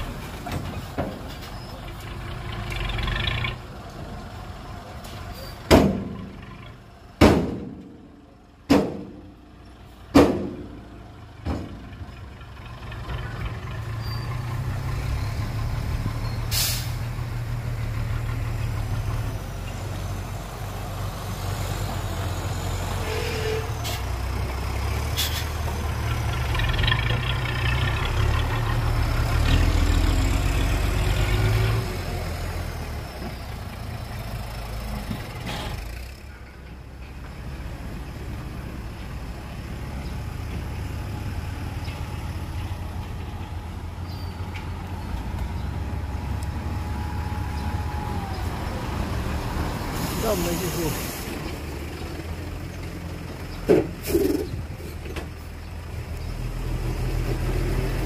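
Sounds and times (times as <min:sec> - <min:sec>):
diesel engine under load: 0:00.0 - 0:58.0
heavy metallic bangs: 0:07.2 - 0:09.4.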